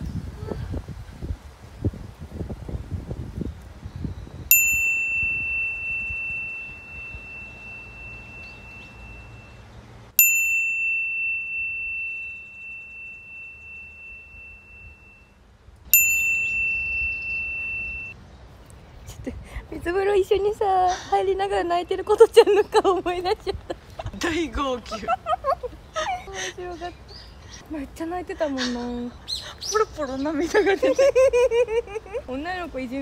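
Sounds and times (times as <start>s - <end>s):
bell chime ringing: 4.5s - 9.6s, 10.2s - 15.3s, 15.9s - 18.2s.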